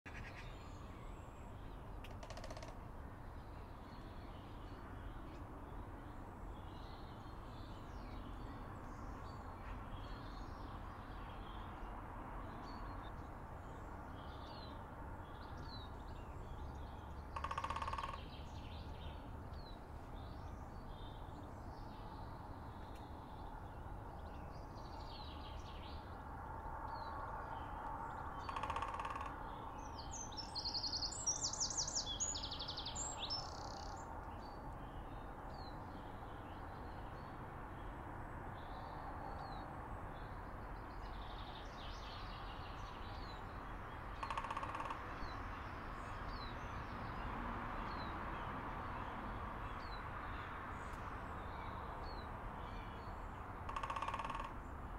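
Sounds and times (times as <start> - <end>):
harsh rasping bird calls: 0.1 - 0.6, 2.0 - 2.8, 17.3 - 18.3, 28.4 - 29.4, 44.2 - 45.1, 53.6 - 54.6
small birds chirping: 29.8 - 37.3.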